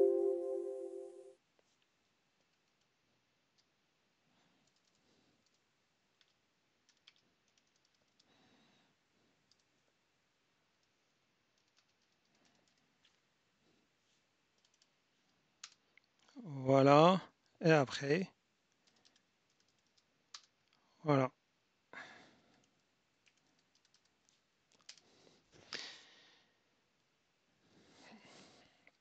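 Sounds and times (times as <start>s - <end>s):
keyboard typing: 4.6s - 5.6s, 6.2s - 8.3s, 11.6s - 12.9s, 14.6s - 14.9s, 18.7s - 20.6s, 23.2s - 25.0s.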